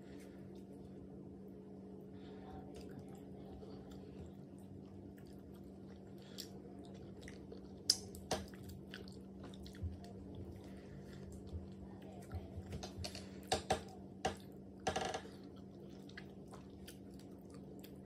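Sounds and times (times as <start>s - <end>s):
steady low hum: 0.0s - 18.0s
wet chewing and lip smacks: 2.7s - 12.0s, 14.4s - 18.0s.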